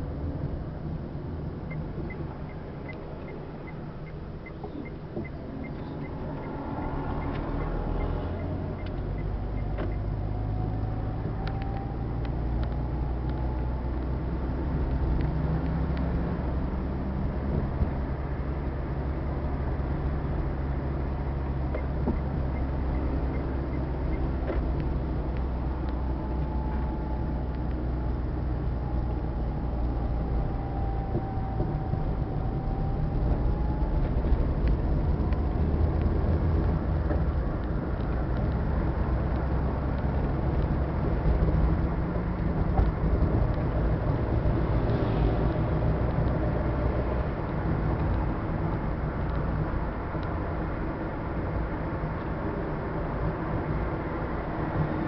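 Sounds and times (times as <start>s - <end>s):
vehicle engine and road rumble: 0.0s - 55.0s.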